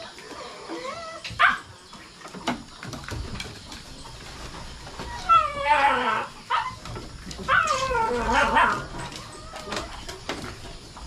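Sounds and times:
dog whimpering: 5.0s - 6.8s, 7.5s - 10.0s.

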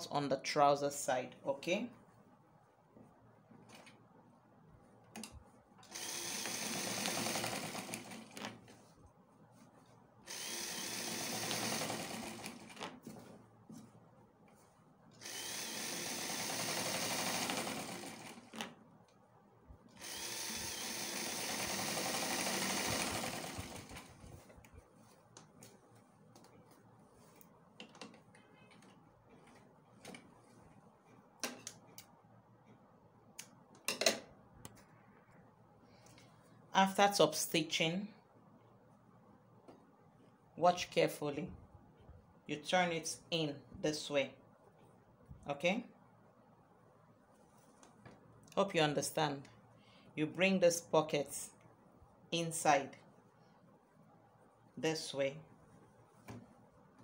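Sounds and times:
electric sewing machine stitching: 5.8s - 8.6s, 10.3s - 12.8s, 15.2s - 18.6s, 20.0s - 24.2s
cloth rustling: 12.5s - 15.0s, 24.0s - 31.3s, 47.2s - 48.4s
fabric handling: 12.5s - 15.0s, 23.9s - 31.4s, 47.1s - 48.4s.

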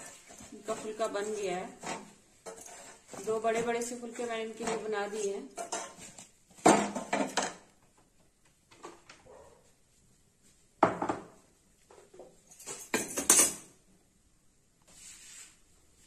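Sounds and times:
metal kitchenware clattering: 0.0s - 7.7s, 12.5s - 13.7s.

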